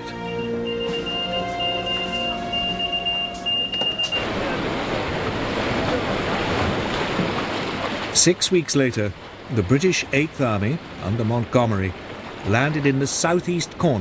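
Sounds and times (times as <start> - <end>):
held music notes: 0.0 - 4.3
sea surf and churning water: 0.0 - 14.0.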